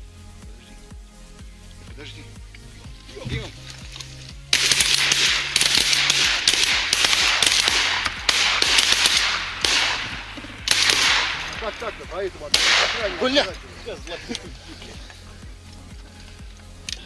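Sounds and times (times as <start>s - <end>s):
geese honking: 3.0s - 16.4s
shotgun blasts: 4.5s - 13.7s.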